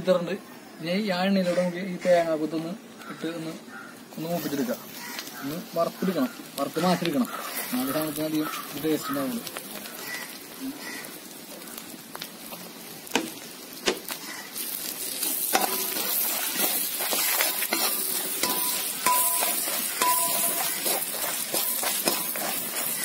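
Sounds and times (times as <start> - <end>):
food sizzling in hot oil: 2.0 - 23.0
steel spoon scraping a wok: 15.2 - 23.0.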